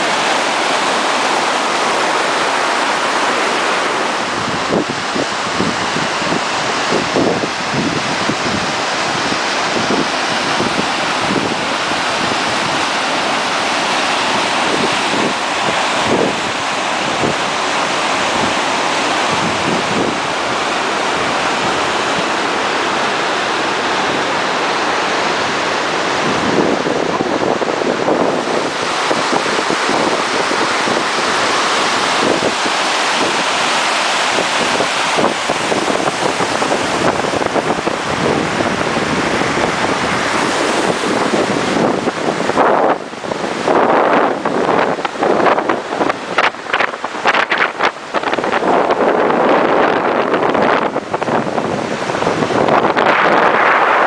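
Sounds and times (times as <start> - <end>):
stream rushing over rocks: 0.0 - 54.0.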